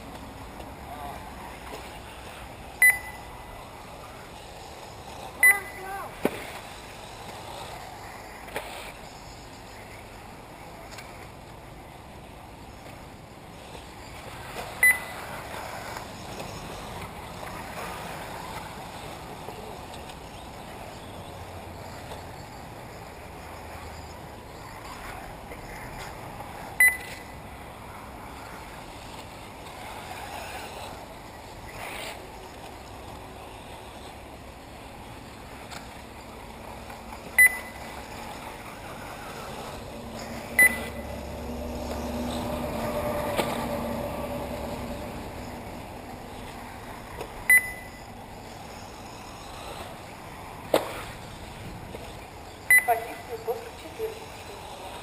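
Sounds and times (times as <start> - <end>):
short high electronic beeps: 2.8 - 3.3, 5.4 - 5.8, 14.8 - 15.1, 26.8 - 27.3, 37.4 - 37.9, 40.5 - 41.1, 47.5 - 48.1, 52.7 - 53.1.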